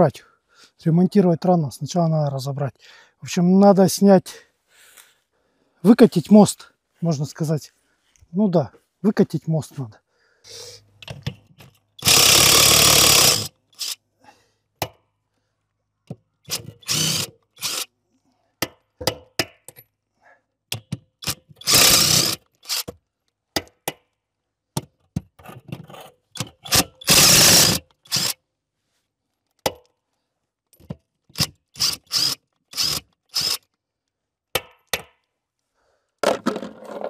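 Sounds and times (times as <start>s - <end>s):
noisy tool bursts: 12.0s - 14.0s, 16.5s - 17.9s, 21.2s - 22.9s, 26.6s - 28.4s, 31.4s - 33.6s.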